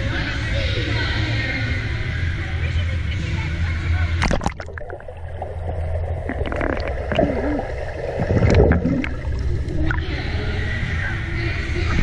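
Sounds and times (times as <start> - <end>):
muffled underwater rumble: 0.0 - 12.0
underwater gurgling: 4.1 - 12.0
bubbly splashes from kicking: 4.2 - 10.0.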